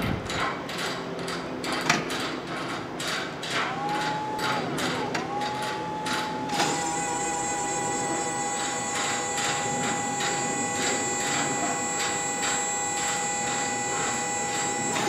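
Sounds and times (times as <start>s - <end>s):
buzzing tone: 6.0s - 15.0s.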